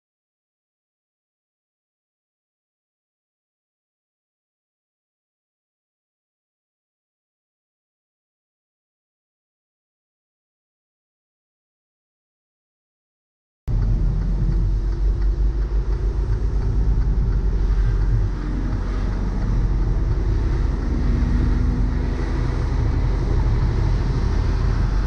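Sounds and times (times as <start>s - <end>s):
truck engine rumble: 13.7s - 25.0s
tyres on wet road: 13.7s - 25.0s.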